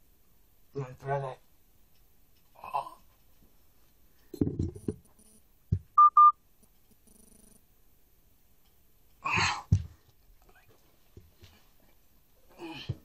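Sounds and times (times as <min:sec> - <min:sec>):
short loud beeps: 0:06.0 - 0:06.4.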